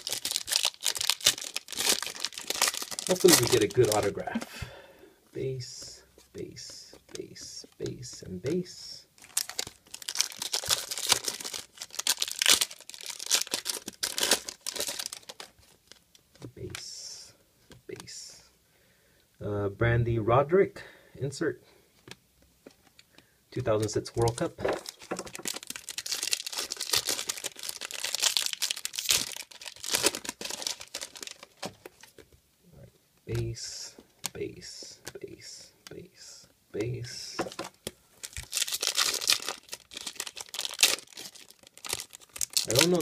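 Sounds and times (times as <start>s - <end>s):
foil wrapper tearing and crinkling: 0.0s - 4.2s, 9.2s - 16.1s, 24.2s - 32.1s, 38.2s - 43.0s.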